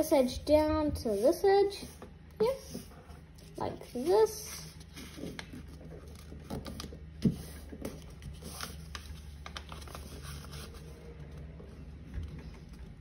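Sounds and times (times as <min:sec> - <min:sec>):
paper rustling and scraping: 0:02.7 - 0:12.7.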